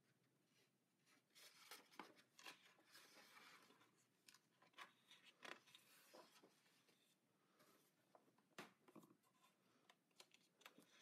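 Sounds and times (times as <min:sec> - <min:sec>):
book pages turning: 0:01.4 - 0:07.0.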